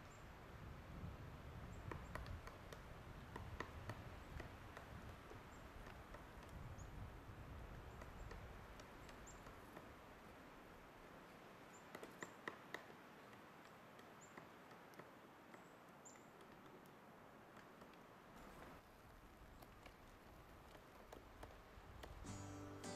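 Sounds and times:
woodpecker knocking on tree: 1.6s - 10.0s, 11.8s - 18.8s, 19.6s - 22.2s.

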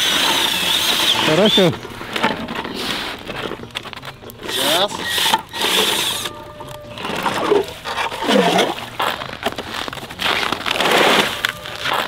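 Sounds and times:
plastic shovel scraping ice: 4.4s - 12.0s.

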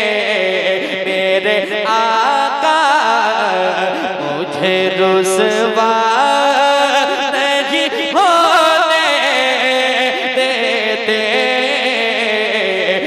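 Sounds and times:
man singing over pa system: 0.0s - 13.0s.

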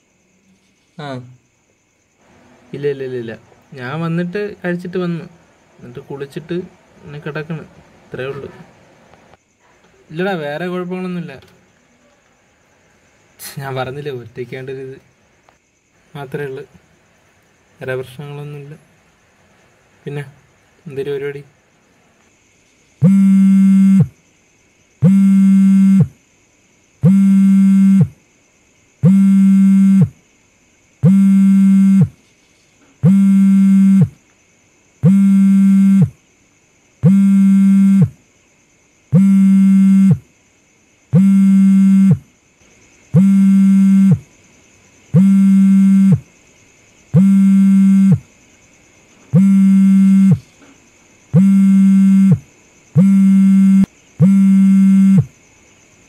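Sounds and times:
phone buzzing on vibrate: 23.0s - 24.2s, 25.0s - 26.2s, 27.0s - 28.2s, 29.0s - 30.2s, 31.0s - 32.2s, 33.0s - 34.2s, 35.0s - 36.2s, 37.0s - 38.2s, 39.1s - 40.2s, 41.1s - 42.2s, 43.2s - 44.2s, 45.2s - 46.2s, 47.2s - 48.3s, 49.3s - 50.5s, 51.4s - 52.4s, 53.0s - 55.3s.

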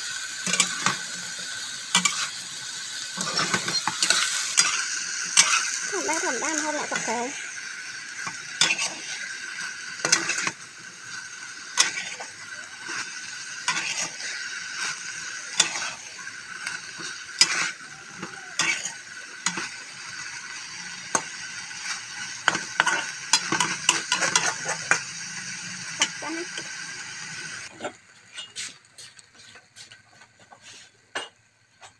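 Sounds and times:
food sizzling in a frying pan: 0.0s - 31.9s
metal spatula scraping a pan: 0.4s - 2.4s, 3.1s - 7.2s, 8.1s - 10.7s, 11.4s - 20.0s, 20.6s - 25.1s.

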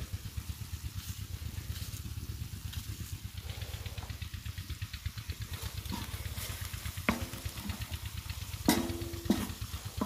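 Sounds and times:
engine running: 0.0s - 10.0s
metal clank on iron griddle: 7.1s - 7.8s, 8.6s - 10.0s.

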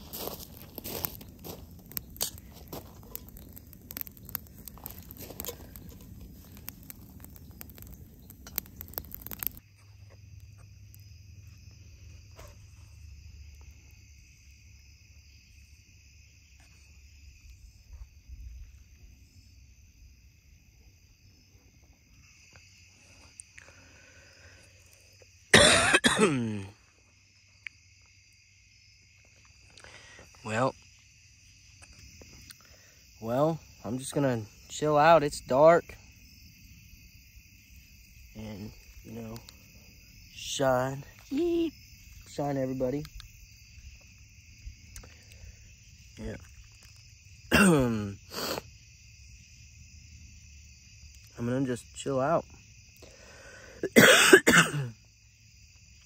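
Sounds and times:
footsteps crunching on gravel: 0.0s - 3.6s, 4.7s - 6.8s
insects trilling: 0.0s - 56.0s
person coughing: 25.6s - 26.7s, 47.5s - 48.1s, 53.8s - 54.9s.

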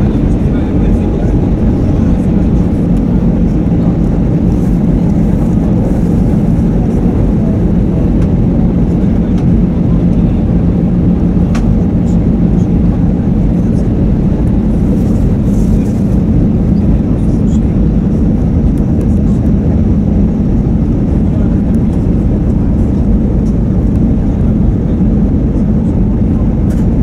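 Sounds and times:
aircraft cabin engine drone: 0.0s - 27.0s.

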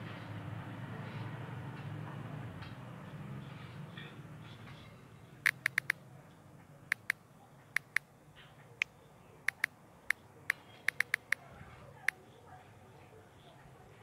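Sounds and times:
phone keyboard clicks: 5.4s - 6.0s, 6.9s - 8.1s, 8.8s - 11.4s.

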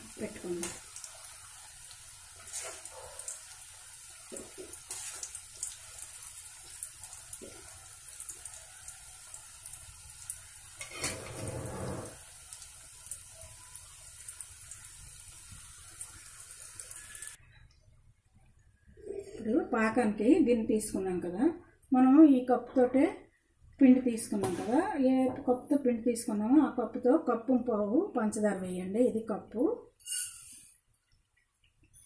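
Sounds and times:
hot oil sizzling and crackling: 0.0s - 17.4s.

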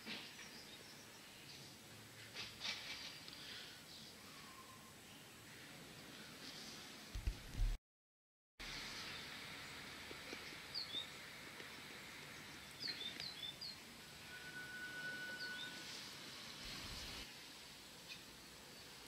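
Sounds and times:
faint thin whistle: 4.2s - 5.0s, 14.2s - 16.1s
steady background hiss: 8.6s - 19.0s
bird chirps: 12.6s - 13.8s, 14.4s - 15.9s.

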